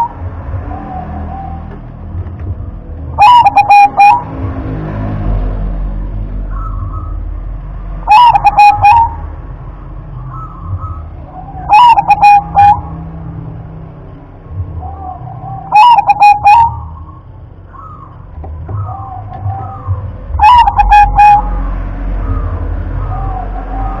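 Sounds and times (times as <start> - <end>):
dove cooing: 3.2 - 4.3, 8.1 - 9.2, 10.3 - 12.9, 14.8 - 21.6
low background rumble: 5.4 - 24.0.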